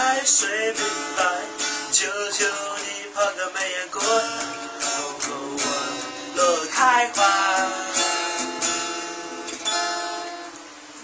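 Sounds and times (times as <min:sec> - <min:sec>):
man singing: 0:00.0 - 0:08.4
acoustic guitar strummed: 0:00.0 - 0:11.0.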